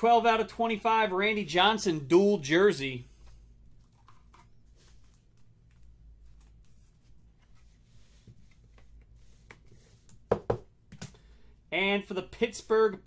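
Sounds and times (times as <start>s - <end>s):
cards rustling: 3.1s - 10.2s.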